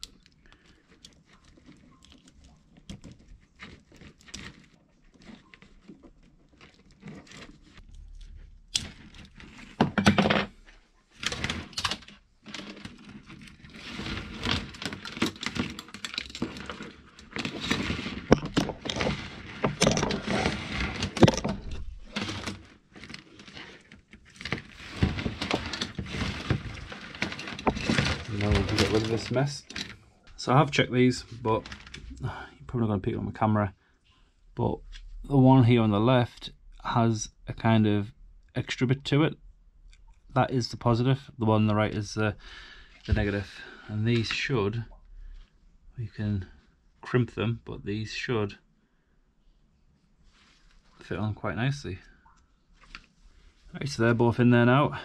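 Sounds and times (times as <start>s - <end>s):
wire rustling and clattering: 0.0s - 30.4s, 31.2s - 32.3s.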